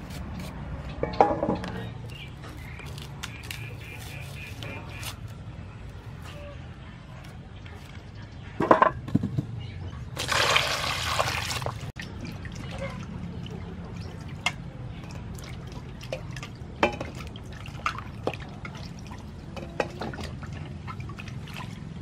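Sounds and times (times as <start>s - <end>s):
water splashing and dripping: 10.2s - 22.0s.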